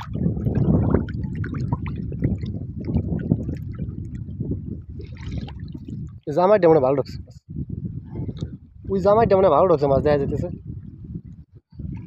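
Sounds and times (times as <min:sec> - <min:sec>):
water splashing from swimming: 0:00.0 - 0:06.3.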